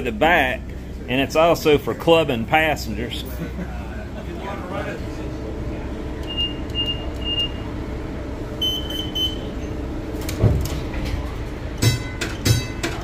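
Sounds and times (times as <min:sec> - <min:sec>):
streetcar rumbling on track: 0:00.0 - 0:13.0
short high beeps: 0:06.2 - 0:07.6, 0:08.6 - 0:09.5
longer beep: 0:06.2 - 0:07.7, 0:08.6 - 0:09.5
thump: 0:10.4 - 0:10.8.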